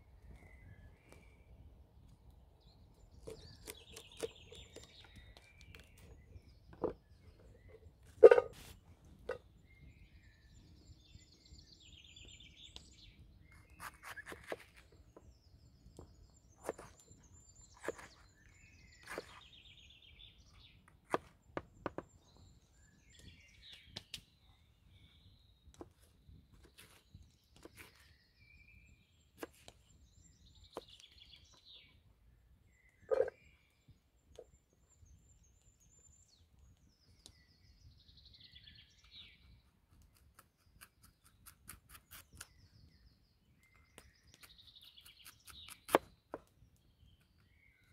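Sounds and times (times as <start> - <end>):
birds chirping faintly: 0.0 - 47.9
knife chopping on wooden board: 17.8 - 18.2.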